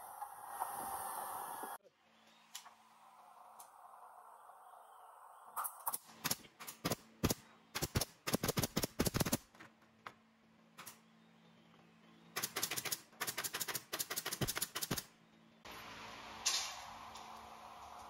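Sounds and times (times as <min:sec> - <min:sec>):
pneumatic nail gun firing: 0:05.6 - 0:09.4, 0:12.4 - 0:15.1.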